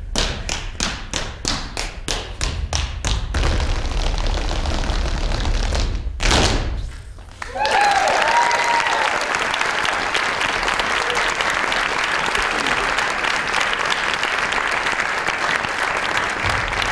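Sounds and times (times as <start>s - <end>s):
audience applauding: 7.3s - 16.9s
cheering whoops: 7.4s - 10.1s, 10.8s - 11.5s.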